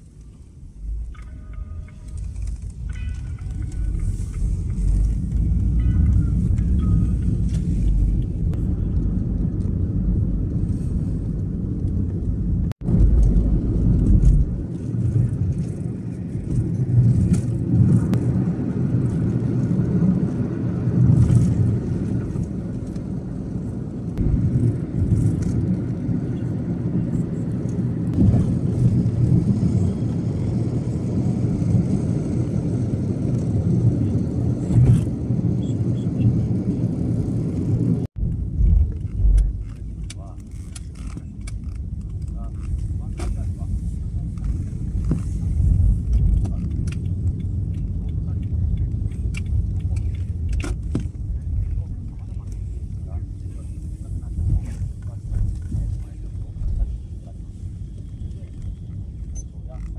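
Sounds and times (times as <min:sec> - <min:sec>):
road and engine rumble inside car: 0:00.0 - 0:59.9.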